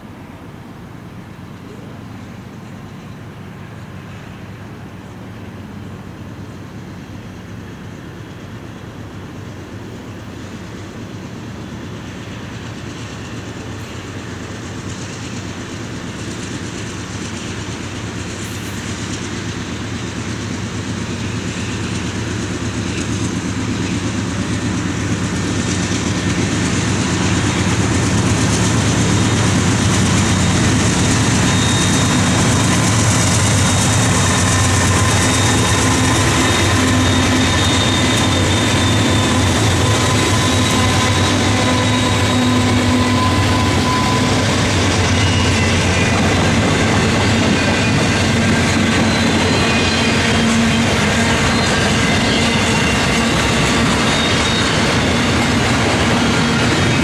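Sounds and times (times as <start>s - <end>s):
locomotive engine drone: 0.0s - 57.0s
train rumble and wheel noise: 0.0s - 57.0s
high wheel squeals: 20.8s - 57.0s.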